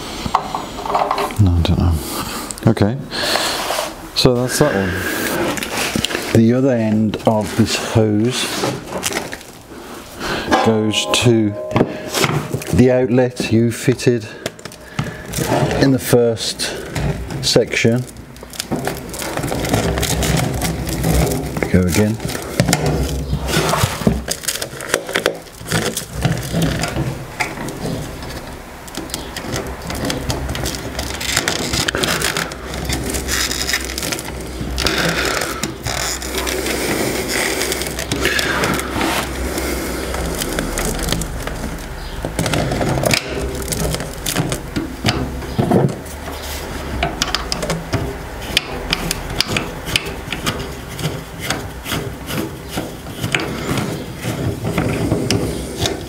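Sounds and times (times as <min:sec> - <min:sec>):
plastic hose scraping on fitting: 0:13.8 - 0:56.0.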